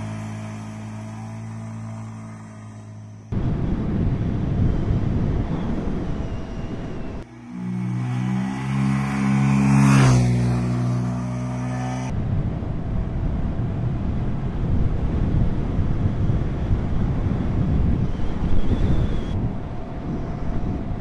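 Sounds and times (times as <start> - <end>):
motorcycle engine passing by: 0.0 - 3.4, 7.0 - 12.2
wind rushing over microphone: 3.3 - 7.3, 12.0 - 21.0.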